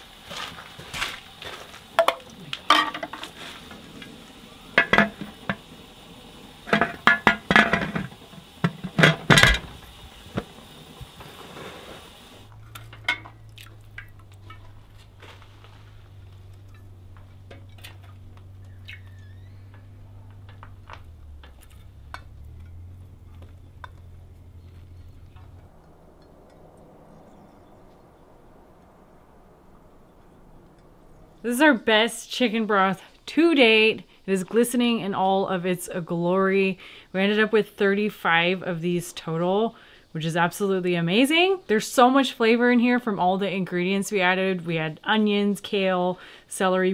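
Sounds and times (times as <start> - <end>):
low hum: 0.0 - 33.3
glass jars clinking: 2.0 - 3.2.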